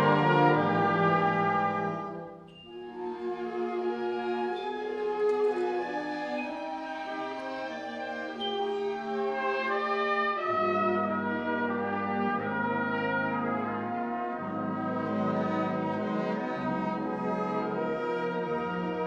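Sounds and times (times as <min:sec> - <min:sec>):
ensemble playing a carol: 0:00.0 - 0:19.0.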